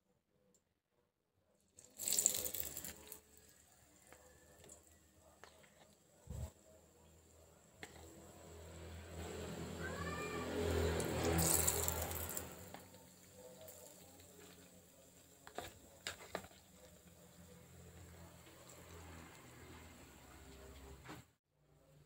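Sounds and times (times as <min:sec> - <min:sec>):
food sizzling in oil: 0:01.9 - 0:03.5, 0:10.5 - 0:14.5.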